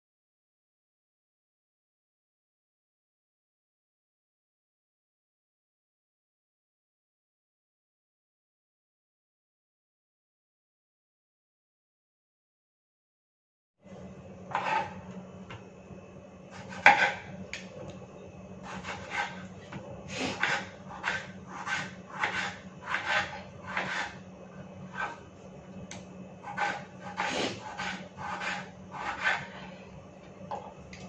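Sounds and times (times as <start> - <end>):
steady low hum: 13.8 - 31.0
knife slicing on wooden board: 16.6 - 17.2, 20.2 - 24.2.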